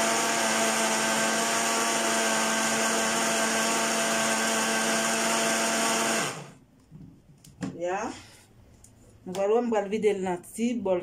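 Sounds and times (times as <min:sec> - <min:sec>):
blender running: 0:00.0 - 0:06.6.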